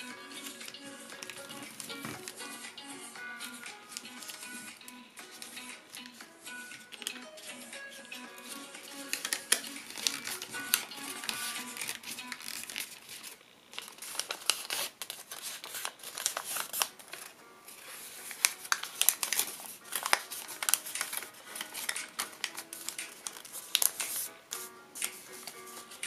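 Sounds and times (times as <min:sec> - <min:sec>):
paper being folded and creased: 0:00.3 - 0:02.6, 0:08.4 - 0:26.0.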